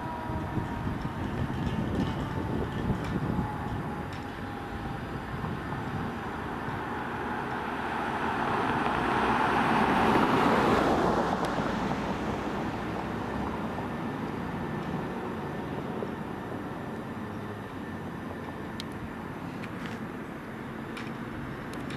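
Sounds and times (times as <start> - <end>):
vehicle passing by: 0.0 - 16.4
background traffic: 0.0 - 21.9.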